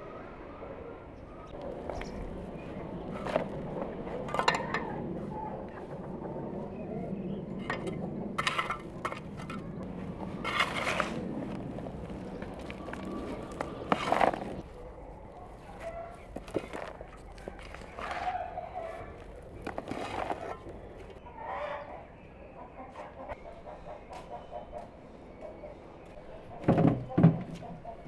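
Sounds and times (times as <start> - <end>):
metal scoop scraping soil: 10.2 - 14.6, 19.6 - 20.9.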